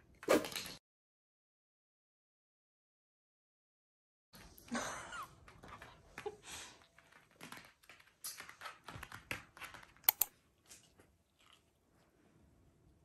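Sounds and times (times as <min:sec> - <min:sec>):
dog claws clicking on floor: 0:05.4 - 0:11.7.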